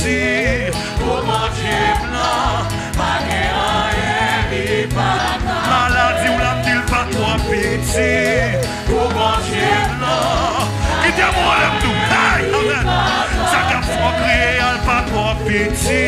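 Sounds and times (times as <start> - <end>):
bass line and beat: 0.0 - 16.0
choir singing gospel: 0.0 - 16.0.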